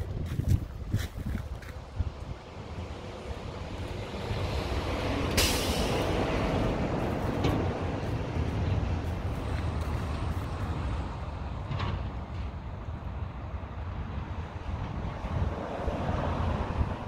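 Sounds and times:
low outdoor rumble: 0.0s - 15.5s
loud hiss: 5.3s - 6.4s.

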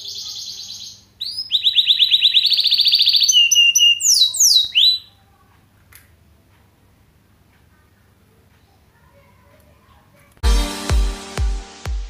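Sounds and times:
canary singing trills and whistles: 0.0s - 5.2s.

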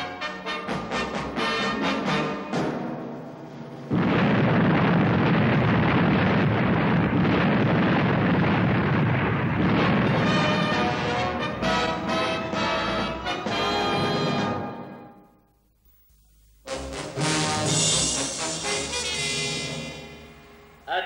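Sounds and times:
orchestral theme music: 0.0s - 3.2s, 16.7s - 20.1s
explosion roar: 3.9s - 12.5s.

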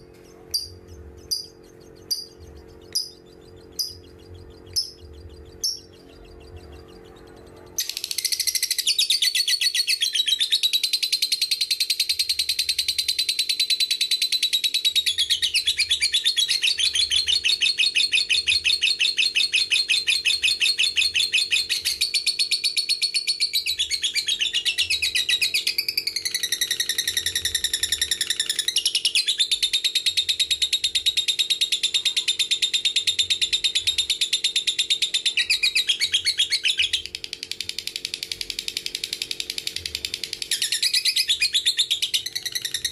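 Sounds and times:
lovebird chattering trill: 0.2s - 22.7s.

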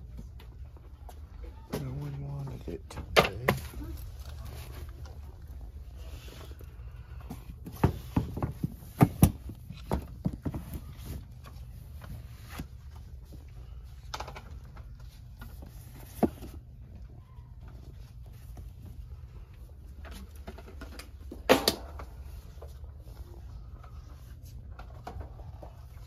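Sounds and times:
books knocking on shelf: 7.4s - 11.3s.

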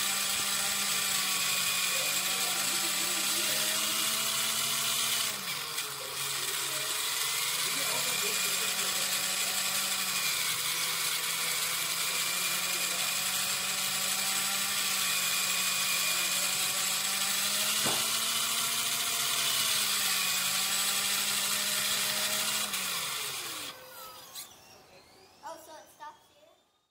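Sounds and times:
rc car motor whining: 0.0s - 26.9s
sharp knock: 17.8s - 18.1s.

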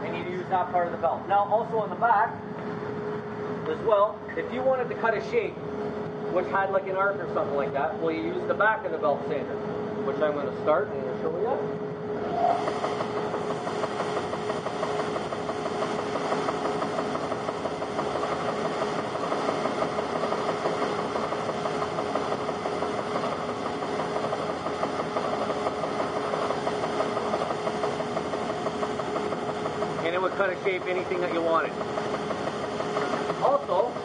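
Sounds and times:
belt sander humming: 12.6s - 34.0s
wood sanding: 12.6s - 34.0s.

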